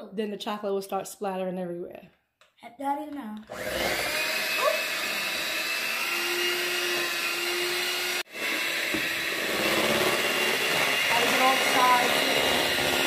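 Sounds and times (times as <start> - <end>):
electric hand mixer whining: 3.5 - 13.0.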